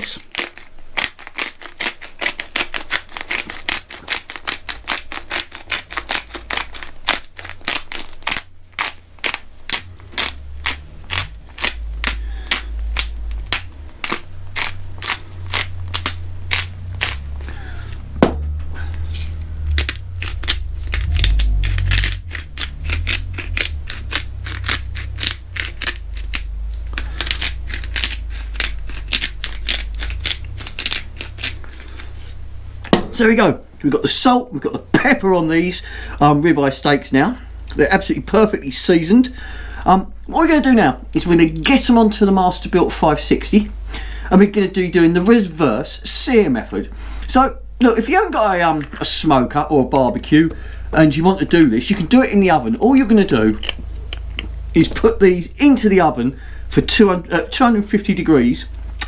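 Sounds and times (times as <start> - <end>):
low rumble: 9.4 - 42.8.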